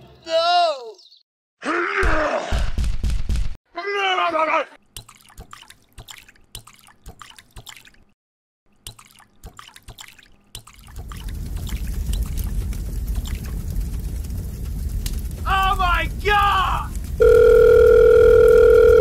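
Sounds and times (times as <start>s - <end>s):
fire burning and crackling: 10.8s - 18.1s.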